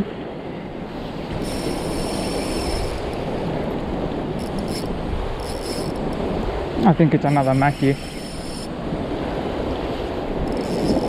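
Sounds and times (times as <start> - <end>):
wind on microphone: 0.0 - 11.0
surf washing against rocks: 0.8 - 11.0
fishing reel whirring: 1.3 - 8.8, 10.4 - 11.0.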